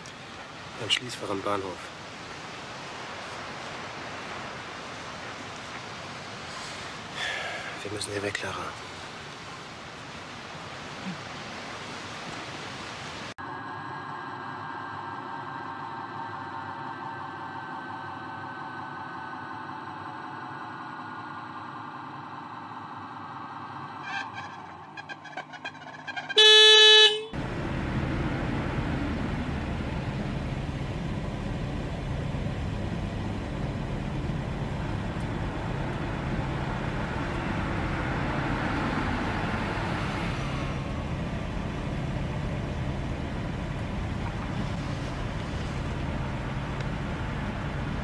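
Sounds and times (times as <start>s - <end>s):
car engine and road noise: 0.0s - 48.0s
car horn: 24.0s - 27.4s.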